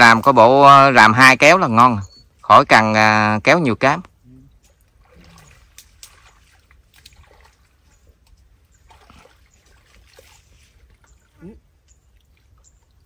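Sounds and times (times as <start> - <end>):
water splashing and trickling: 0.0 - 13.0.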